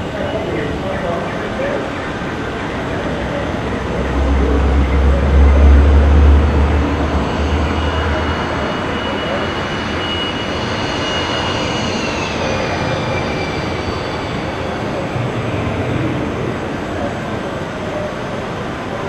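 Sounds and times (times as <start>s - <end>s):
steady rushing noise: 0.0s - 19.0s
thin high whine: 1.6s - 18.1s
low rumble: 2.7s - 9.9s.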